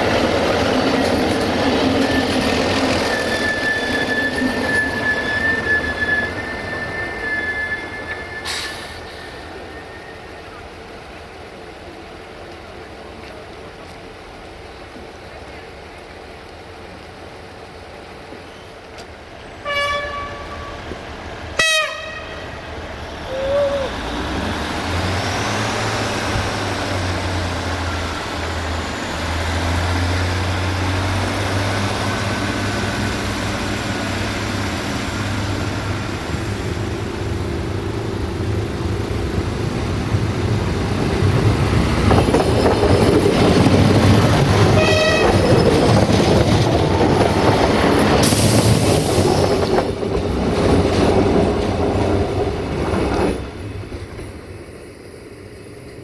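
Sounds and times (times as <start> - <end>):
diesel train engines humming: 0.0 - 56.0
train passing with wheel noise: 0.0 - 56.0
diesel railcar horn toots: 19.6 - 20.9, 21.6 - 22.6, 44.7 - 45.4.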